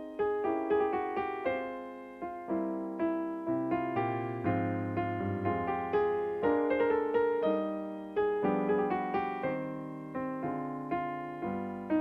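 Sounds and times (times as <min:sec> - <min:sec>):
solo piano playing: 0:00.0 - 0:12.0.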